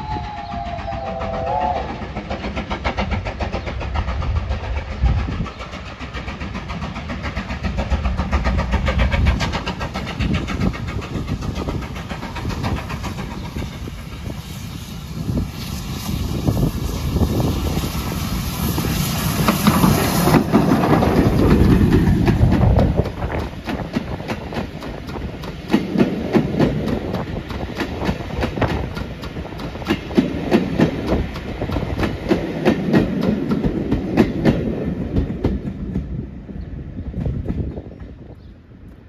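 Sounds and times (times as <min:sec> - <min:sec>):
steam locomotive passing: 0:00.0 - 0:39.0
train wheels clicking over rail joints: 0:00.0 - 0:39.0.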